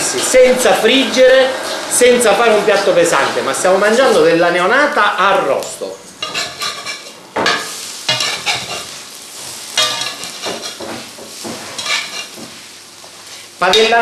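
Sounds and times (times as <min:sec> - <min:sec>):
light frying sizzle: 0:00.0 - 0:14.0
utensils scraping frying pan: 0:06.1 - 0:14.0.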